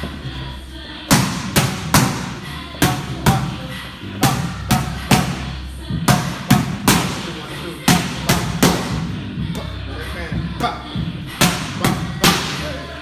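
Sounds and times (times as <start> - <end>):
background music: 0.0 - 13.0
boxing gloves smacking pads: 1.1 - 3.6, 6.1 - 9.1, 11.4 - 12.7.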